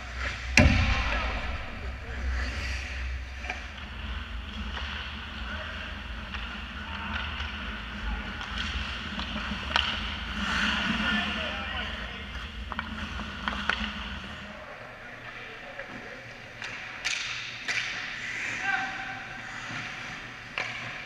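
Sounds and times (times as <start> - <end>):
low arena rumble: 0.0 - 16.4
skate blades scraping ice: 3.8 - 14.4
hockey stick clicks: 8.4 - 10.1, 16.6 - 18.1.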